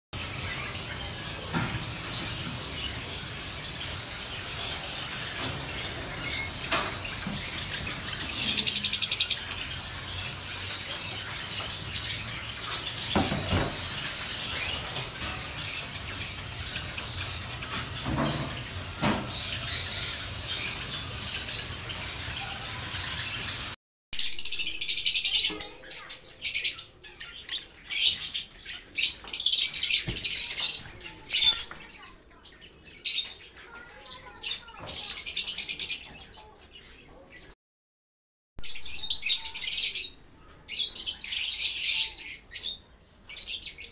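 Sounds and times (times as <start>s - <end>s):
lovebirds chirping: 2.1s - 37.6s, 38.6s - 43.9s.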